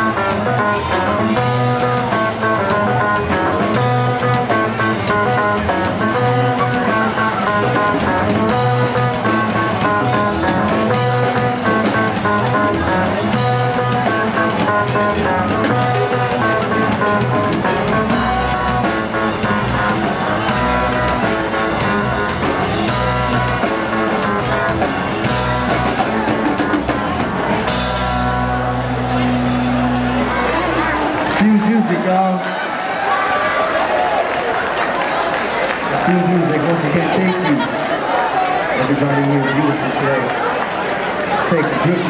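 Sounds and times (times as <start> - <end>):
saxophone: 0.0 - 31.2
drum kit: 0.0 - 31.7
electric guitar: 0.0 - 32.6
keyboard: 0.0 - 42.0.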